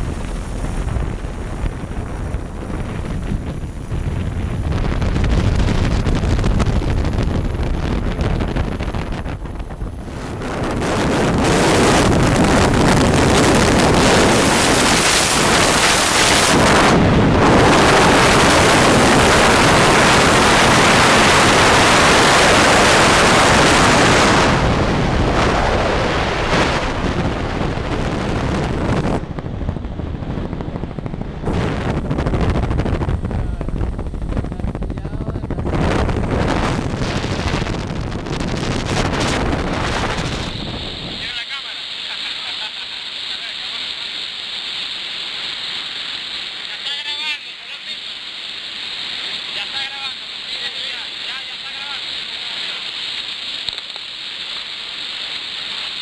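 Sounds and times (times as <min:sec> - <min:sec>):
wind buffeting microphone: 0:00.0 - 0:41.4.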